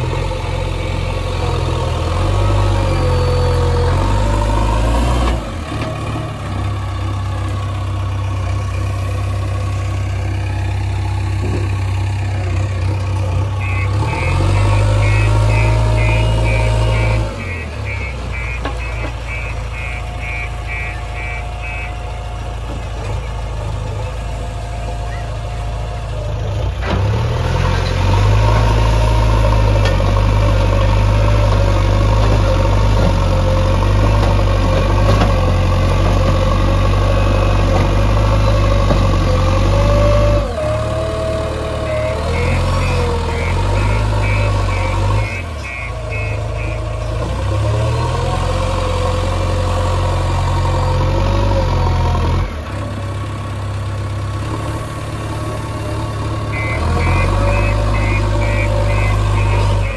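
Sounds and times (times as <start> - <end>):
diesel engine running under load: 0.0 - 59.9
rapid high beeping: 13.6 - 22.2, 41.9 - 47.0, 56.5 - 59.9.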